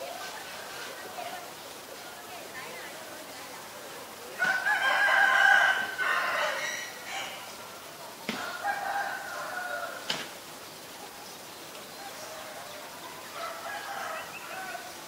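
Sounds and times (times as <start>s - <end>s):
rooster crowing: 4.4s - 7.5s, 8.3s - 10.1s, 12.0s - 15.0s.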